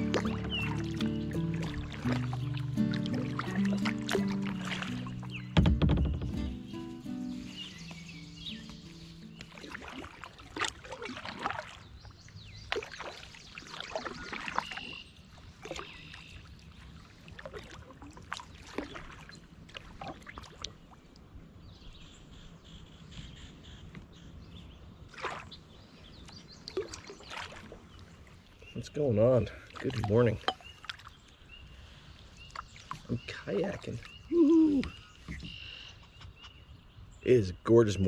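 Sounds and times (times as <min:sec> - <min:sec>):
water dripping: 0:00.0 - 0:05.8, 0:29.7 - 0:31.2
paddle splashing in water: 0:00.0 - 0:21.3, 0:25.0 - 0:28.7, 0:29.4 - 0:36.3.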